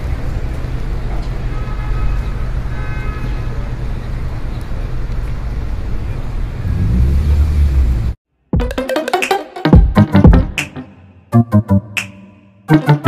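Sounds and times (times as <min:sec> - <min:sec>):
road traffic rumble: 0:00.0 - 0:08.2.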